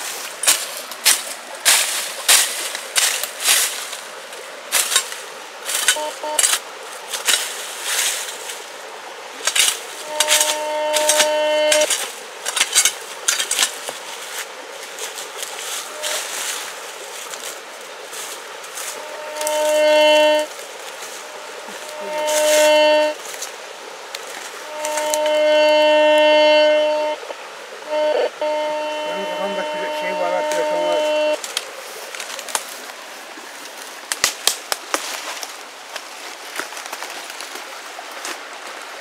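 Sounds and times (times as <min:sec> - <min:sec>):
metal detector tone: 0:05.7 - 0:06.6, 0:09.5 - 0:12.0, 0:15.8 - 0:16.4, 0:18.9 - 0:20.5, 0:21.4 - 0:23.2, 0:24.7 - 0:27.2, 0:27.9 - 0:31.4.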